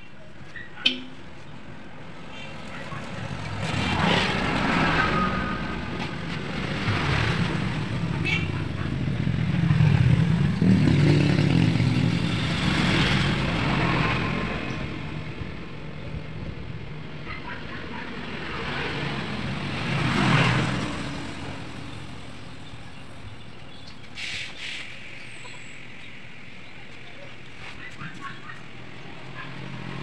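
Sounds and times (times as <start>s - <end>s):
background traffic: 0.0s - 30.0s
vehicle passing: 2.5s - 15.8s, 16.9s - 22.7s
short hiss: 24.2s - 25.0s.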